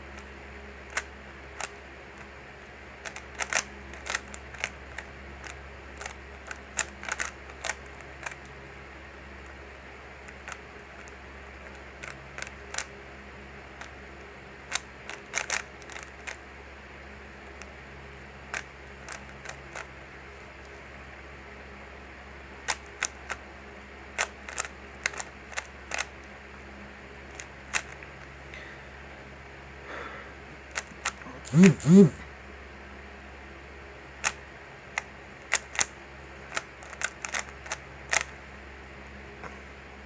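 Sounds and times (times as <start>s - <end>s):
puzzle cube plastic clicks: 3.0s - 8.4s, 11.7s - 12.9s, 14.7s - 16.4s, 18.5s - 19.9s, 22.7s - 23.4s, 24.2s - 26.1s, 30.7s - 32.2s, 35.0s - 35.9s, 36.5s - 38.3s
steady low hum: 24.8s - 35.3s.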